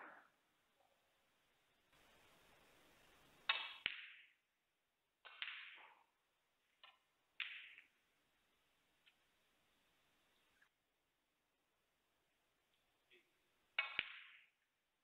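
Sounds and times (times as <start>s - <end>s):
snooker balls clicking: 5.2s - 6.1s, 6.8s - 8.0s, 13.8s - 14.6s.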